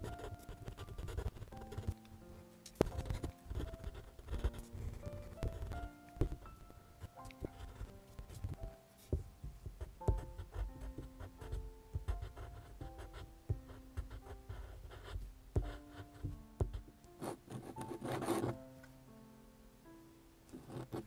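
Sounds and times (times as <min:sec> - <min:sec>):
pencil scratching on paper: 0:00.0 - 0:02.0, 0:02.8 - 0:06.4, 0:07.4 - 0:08.6, 0:09.8 - 0:18.6, 0:20.5 - 0:21.0
soft background music: 0:00.0 - 0:21.0.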